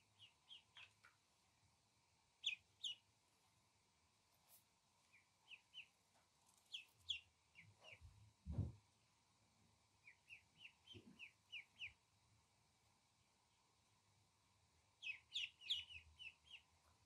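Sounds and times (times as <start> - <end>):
duckling peeping: 0.0 - 1.1, 2.4 - 3.1, 5.0 - 8.2, 10.0 - 12.0, 15.0 - 16.8
soft low thump: 8.4 - 8.8.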